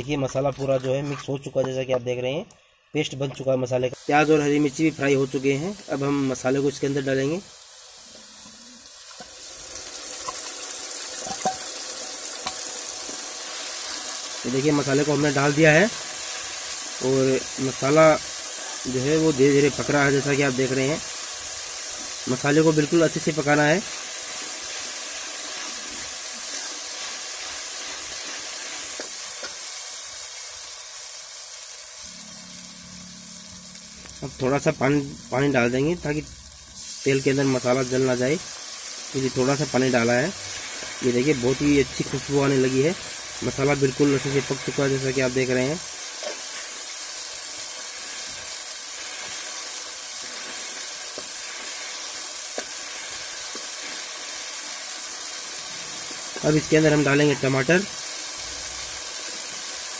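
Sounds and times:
spice paste sizzling in oil: 0.0 - 59.9
steel ladle stirring: 11.2 - 11.7.

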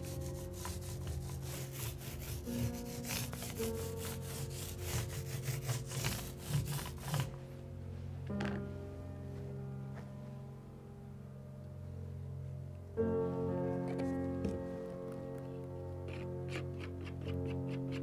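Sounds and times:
paint roller rubbing on plaster wall: 0.0 - 7.5.

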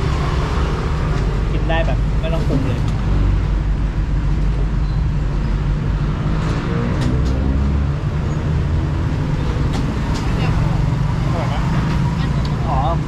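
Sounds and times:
road traffic rumble: 0.0 - 13.0
vehicle engine passing: 5.5 - 13.0.

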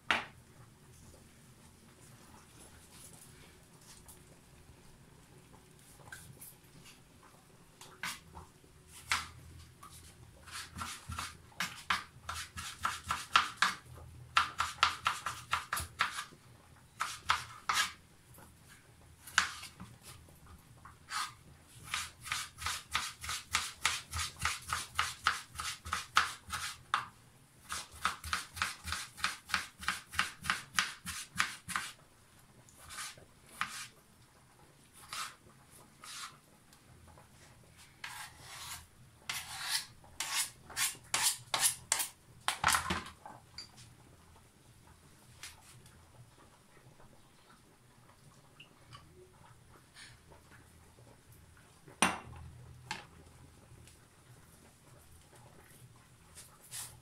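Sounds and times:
knife slicing on cutting board: 38.0 - 42.1.

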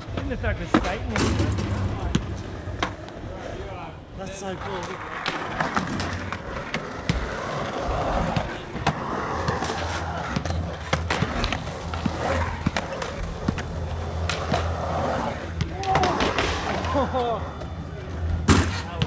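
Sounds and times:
skateboard wheels rumbling on concrete: 0.0 - 19.0.

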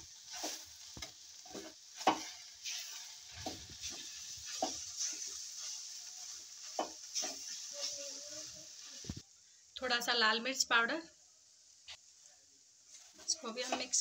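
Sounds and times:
metal spatula scraping a pan: 0.0 - 9.2
food sizzling in oil: 0.0 - 14.0.

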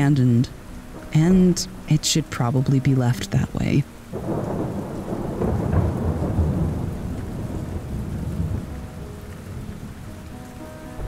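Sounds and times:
faint sustained music tones: 0.0 - 11.0
steady rain: 0.0 - 11.0
rolling thunder: 4.1 - 10.3.

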